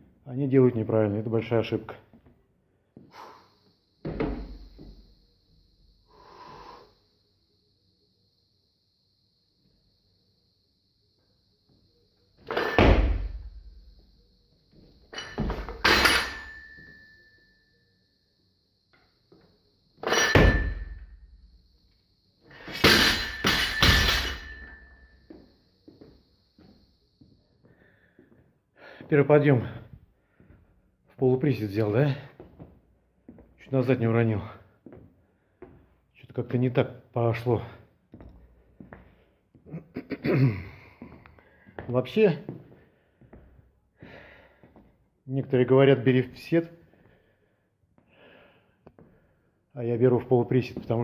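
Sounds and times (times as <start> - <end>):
barbell dropped on gym floor: 12.4 - 13.7, 15.1 - 16.9, 20.0 - 21.2, 22.6 - 25.1
metal bar ringing: 15.1 - 17.2, 20.0 - 21.0, 22.8 - 25.1.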